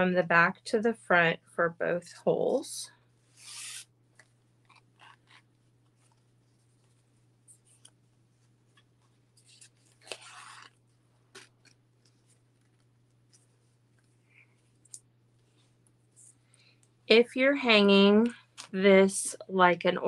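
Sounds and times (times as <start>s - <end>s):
paper and ribbon rustling: 3.3s - 16.2s.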